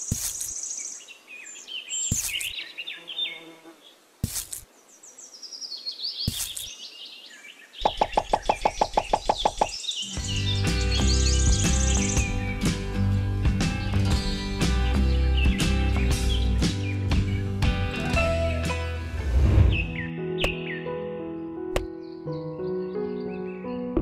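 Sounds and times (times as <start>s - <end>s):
birds chirping: 0.0s - 4.0s, 4.6s - 21.0s
music: 10.0s - 24.0s.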